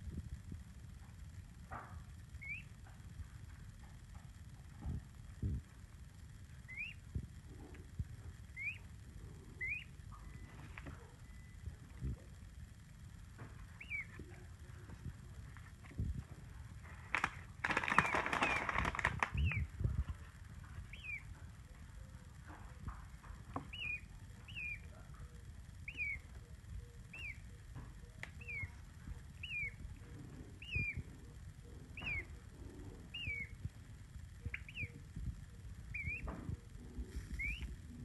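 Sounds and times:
peachick peeping: 2.3 - 3.0, 6.5 - 12.4, 13.4 - 16.0, 17.0 - 38.0.

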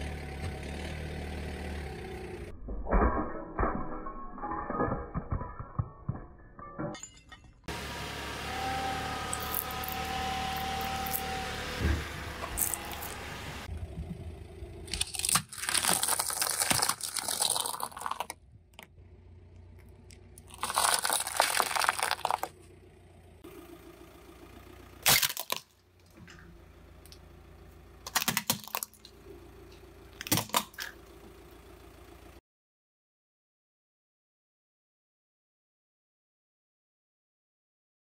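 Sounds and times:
low engine hum: 0.0 - 2.6, 7.7 - 15.4, 18.4 - 25.1, 25.7 - 28.2, 28.8 - 32.4
tyre crunching plastic and pasta: 12.6 - 13.2, 14.9 - 18.4, 20.4 - 22.6, 25.0 - 25.7, 28.1 - 29.1
plastic toy cracking: 14.9 - 18.9, 20.4 - 22.5, 25.0 - 25.7, 28.1 - 29.1.

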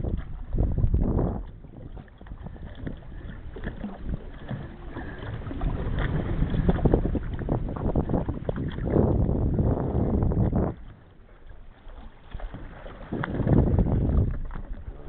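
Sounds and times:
water lapping against boat hull: 0.0 - 15.0
wind on microphone: 0.0 - 15.0.

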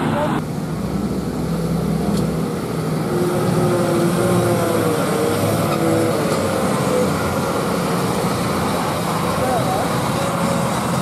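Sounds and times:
diesel engine pulling under load: 0.0 - 11.0.

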